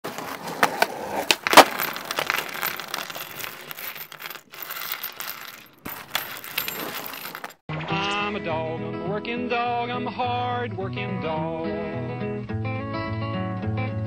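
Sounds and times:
metal bearings clinking: 1.3s - 7.6s.

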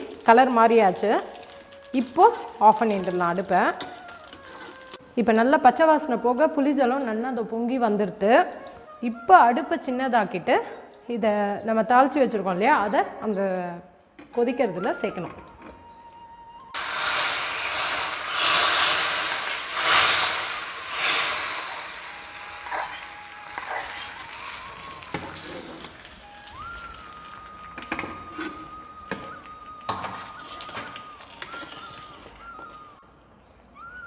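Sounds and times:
hot oil sizzling: 0.0s - 5.0s, 16.8s - 32.9s
metal ladle scraping a pot: 16.8s - 26.0s.

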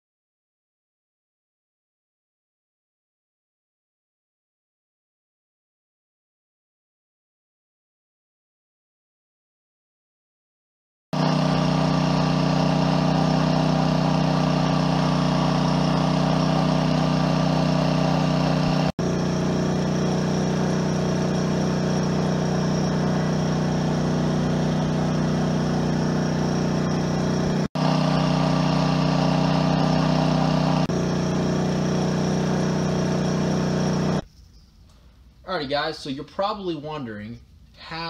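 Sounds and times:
generator running: 11.2s - 34.3s.

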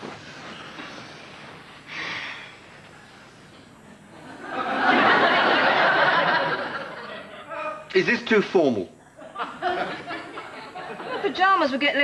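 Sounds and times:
studio audience laughing: 4.1s - 7.5s, 9.1s - 11.5s.

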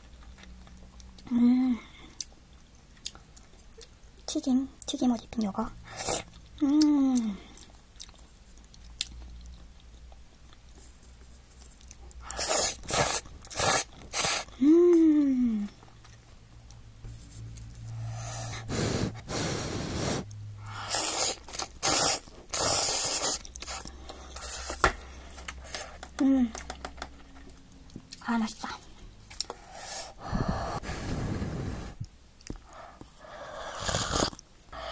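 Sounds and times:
chewing: 3.0s - 4.3s, 5.9s - 10.8s
noodles being slurped: 12.2s - 14.5s, 20.8s - 24.8s, 33.6s - 34.4s
person humming: 14.5s - 15.8s
breathy rush of air: 18.0s - 21.0s, 29.6s - 32.0s.

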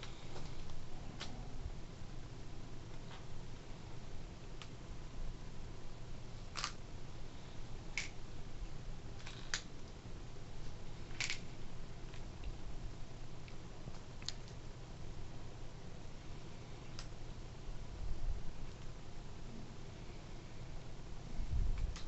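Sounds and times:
faint low hum: 0.0s - 22.0s
plastic bricks clicking: 6.5s - 6.8s, 11.1s - 11.4s.

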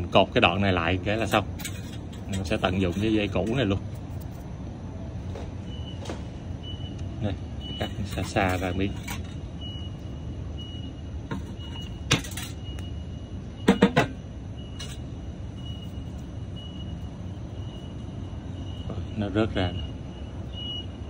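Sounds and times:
city traffic hum: 0.0s - 21.0s
faint high beep: 6.6s - 21.0s.

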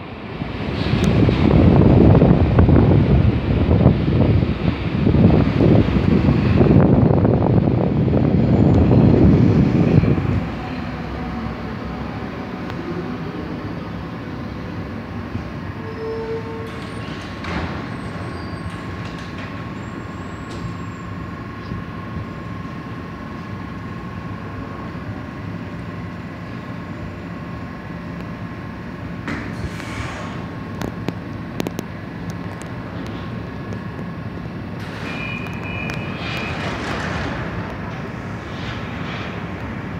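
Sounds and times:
train humming at platform: 0.0s - 39.9s
short tone: 35.1s - 36.2s.

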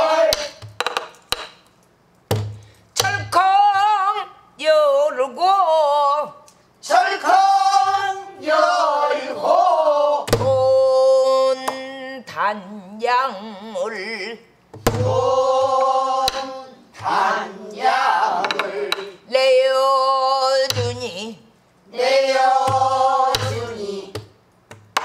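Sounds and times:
voices singing with vibrato: 0.0s - 0.6s, 6.8s - 12.0s, 15.0s - 24.3s.

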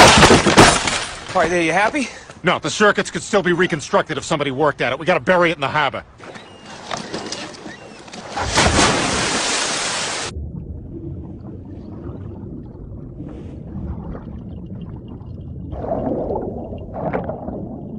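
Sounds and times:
big splash into water: 8.3s - 10.4s
faint bubbling: 10.3s - 17.9s
muffled underwater rumble: 10.3s - 17.9s.

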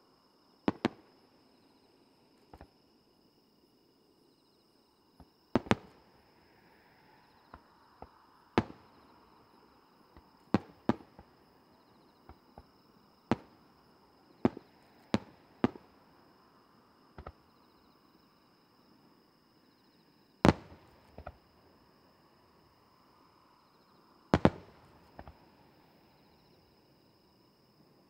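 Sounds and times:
insect chirping: 0.0s - 28.0s
fireworks bangs: 0.7s - 1.1s, 5.6s - 6.0s, 8.0s - 9.0s, 10.5s - 11.4s, 13.3s - 13.6s, 14.4s - 15.9s, 20.4s - 21.4s, 24.3s - 25.4s.

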